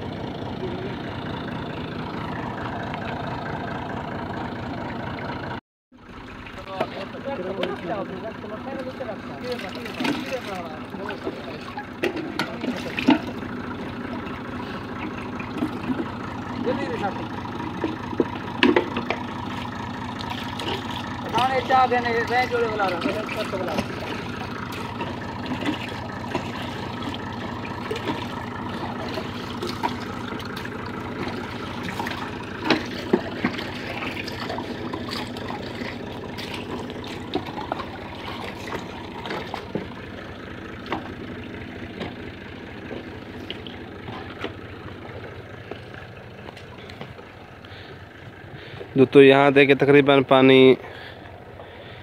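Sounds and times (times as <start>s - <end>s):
tractor engine running: 0.0s - 52.0s
water gushing from pipe: 8.6s - 47.9s.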